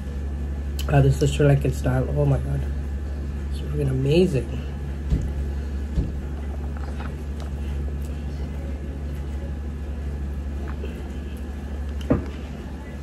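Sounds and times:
low background hum: 0.0s - 13.0s
faint clicks of eating: 5.0s - 9.5s, 10.5s - 12.4s.

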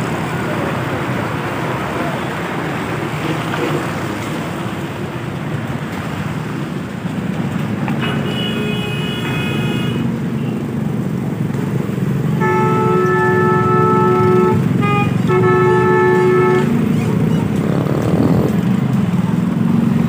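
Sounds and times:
traffic and machinery engine rumble: 0.0s - 20.0s
vehicle horn: 8.0s - 10.5s, 12.4s - 17.0s.

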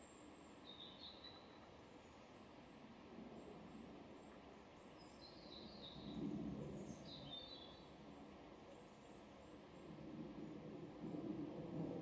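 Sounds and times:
faint low rumble: 2.8s - 12.0s.

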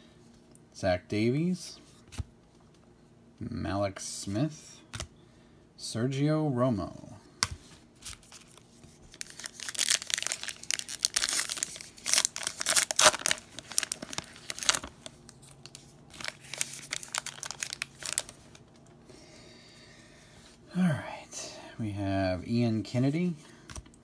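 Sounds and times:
wrapper rustling: 7.9s - 18.8s
card pack wrapper tearing and crinkling: 8.0s - 18.6s.

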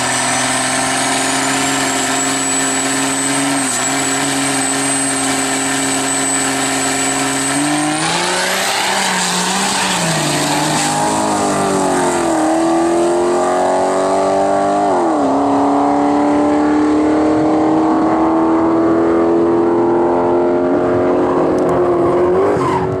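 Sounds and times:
high turbo whistle: 0.0s - 14.0s
diesel engine revving: 0.0s - 23.0s.

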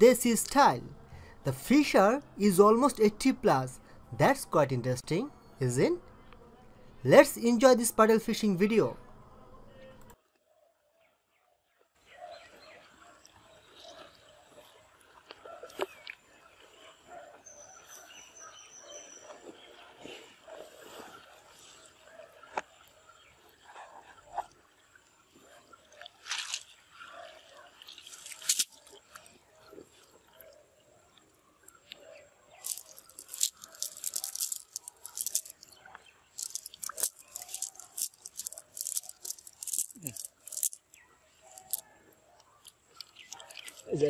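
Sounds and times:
net rustling over dry leaves: 28.0s - 28.9s, 32.6s - 35.6s, 36.4s - 40.8s.

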